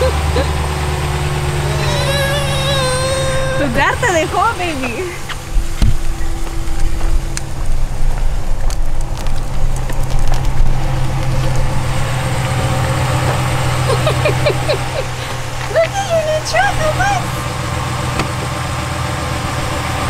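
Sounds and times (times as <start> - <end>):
truck engine idling: 0.0 - 20.0
stroller wheels clicking on asphalt: 1.8 - 17.3.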